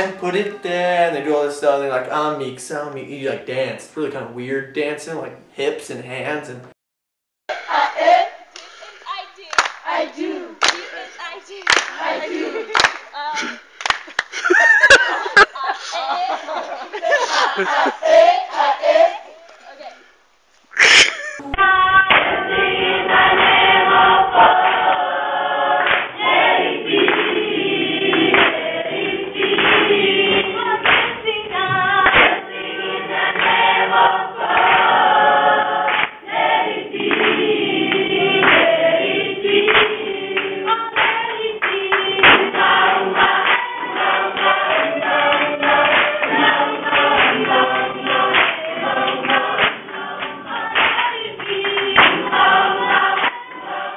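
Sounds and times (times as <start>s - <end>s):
children singing in chorus: 7.5s - 8.5s, 9.6s - 12.8s, 15.9s - 19.3s, 21.4s - 53.9s
hands clapping: 8.5s - 8.7s, 9.5s - 9.8s, 10.6s - 11.0s, 11.6s - 13.1s, 13.8s - 14.6s, 25.8s - 26.1s, 27.0s - 27.4s, 28.1s - 28.6s, 29.5s - 31.1s, 32.0s - 32.4s, 33.4s - 33.6s, 35.9s - 36.2s, 37.0s - 38.7s, 39.7s - 42.6s, 43.2s - 52.3s, 53.2s - 53.4s.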